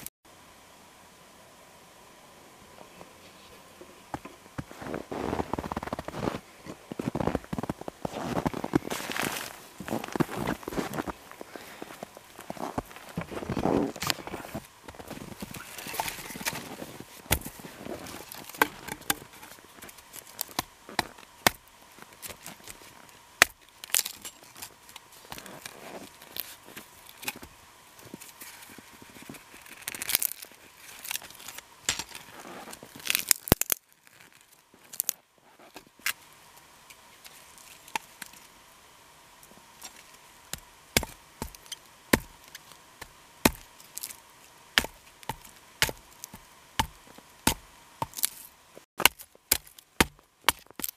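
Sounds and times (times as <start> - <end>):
hatchet chopping firewood: 17.3 - 17.6, 18.3 - 19.4, 20.3 - 22.8, 23.4 - 24.7, 40.5 - 44.2, 44.8 - 48.4, 49.0 - 50.9.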